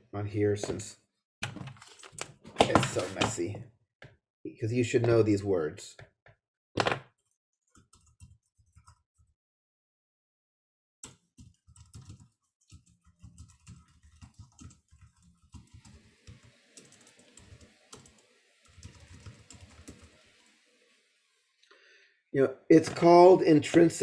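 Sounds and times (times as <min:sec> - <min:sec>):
typing on computer keyboard: 0:07.7 - 0:09.0, 0:11.0 - 0:20.2.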